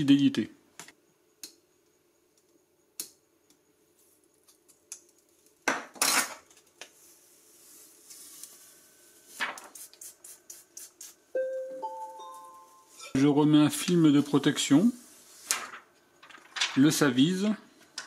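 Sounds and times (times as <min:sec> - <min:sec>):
plastic rustles: 0:15.4 - 0:17.6.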